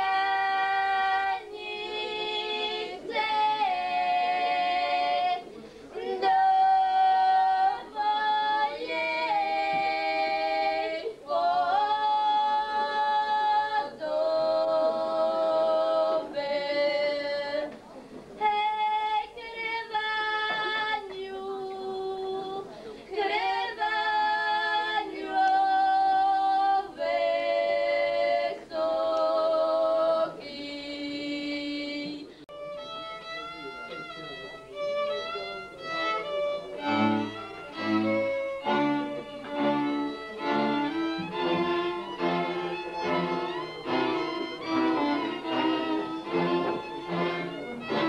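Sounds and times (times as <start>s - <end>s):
girls singing unaccompanied: 0.0s - 17.8s, 18.4s - 32.3s.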